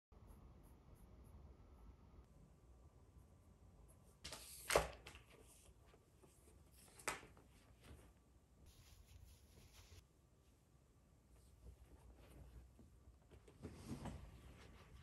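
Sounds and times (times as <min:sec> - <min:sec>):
paper rustling: 0:04.3 - 0:10.0.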